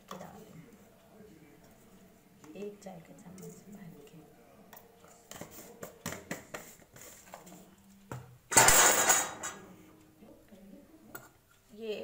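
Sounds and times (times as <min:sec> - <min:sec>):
steel dishes and spoon clinking: 0:08.5 - 0:09.7.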